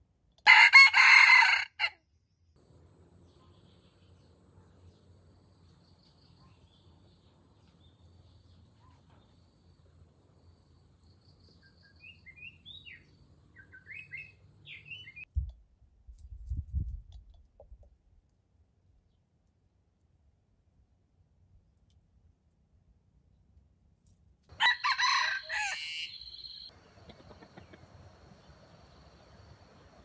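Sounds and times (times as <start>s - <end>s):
birds chirping: 3.2s - 15.3s, 24.6s - 30.0s
faint steady background noise: 18.2s - 30.0s.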